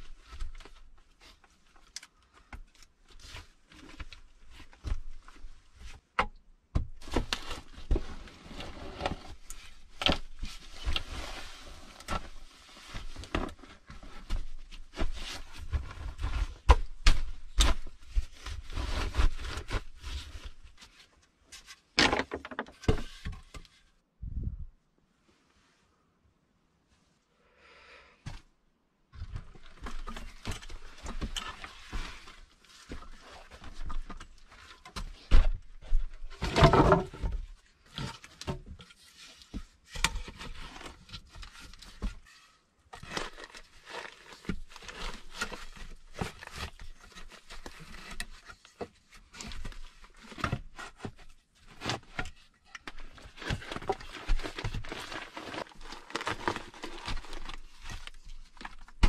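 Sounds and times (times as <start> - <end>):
wooden poles knocking and bumping: 22.0 - 23.6, 35.1 - 37.4.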